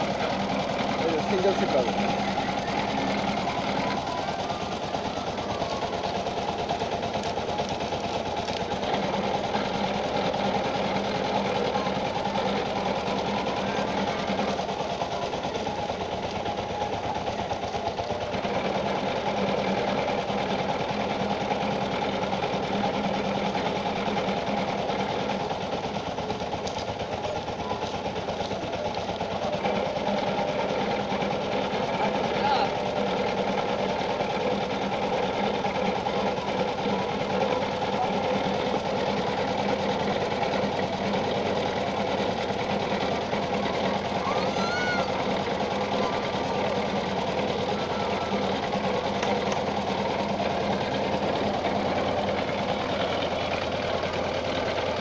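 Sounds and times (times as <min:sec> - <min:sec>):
juice roller machine rattling: 0:00.0 - 0:55.0.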